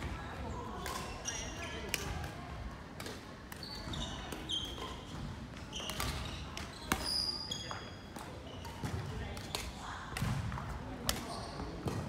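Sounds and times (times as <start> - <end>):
shoes squeaking on court floor: 0.4 - 2.1, 3.5 - 9.8, 11.1 - 12.0
racket hitting shuttlecock: 0.8 - 2.4, 3.0 - 12.0.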